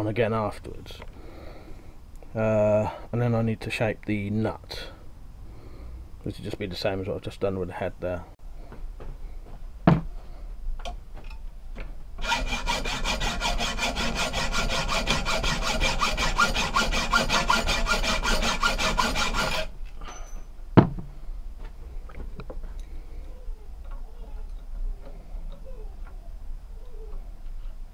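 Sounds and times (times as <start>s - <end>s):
hacksaw cutting metal: 12.2s - 19.7s.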